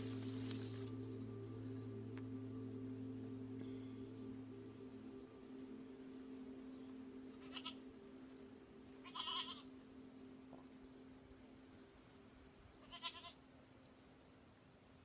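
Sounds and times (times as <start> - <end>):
faint low hum: 0.0 - 15.0
goat bleating: 7.4 - 7.8, 9.0 - 9.6, 12.8 - 13.4.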